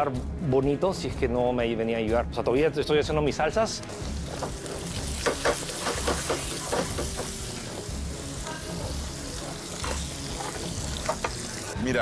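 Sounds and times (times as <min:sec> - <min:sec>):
vegetables sizzling in a pan: 0:03.9 - 0:11.8.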